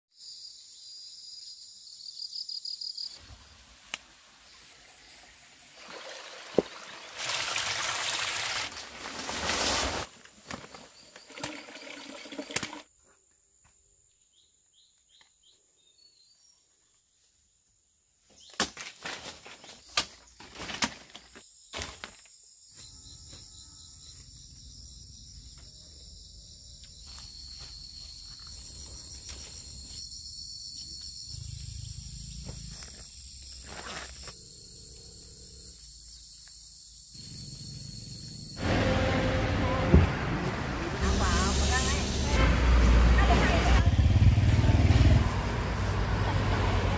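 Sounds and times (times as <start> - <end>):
insects chirring: 0.1 - 6.0, 9.6 - 15.5, 19.6 - 38.8
rustling plants: 6.6 - 11.7, 18.4 - 22.3.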